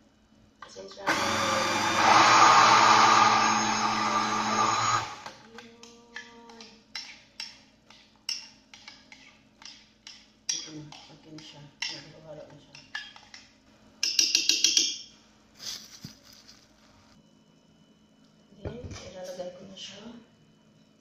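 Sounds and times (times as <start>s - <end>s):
electric blender running: 1.0s - 5.4s.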